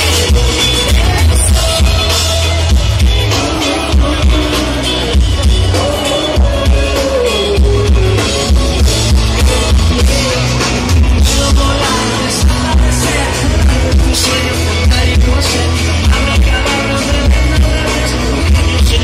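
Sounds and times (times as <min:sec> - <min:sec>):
heavy bass: 0:00.0 - 0:19.0
person singing: 0:00.0 - 0:19.0.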